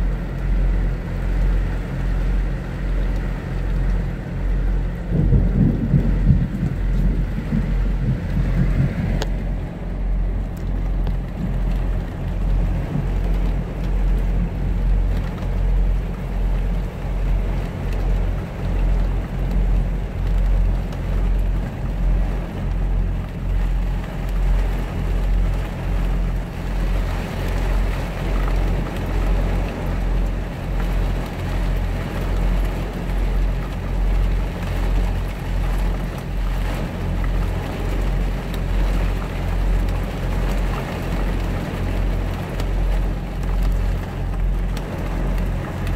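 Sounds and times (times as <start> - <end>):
diesel truck engine idling: 0.0 - 33.4
rain pattering on truck cab: 0.0 - 45.9
thunder rolling: 5.0 - 14.6.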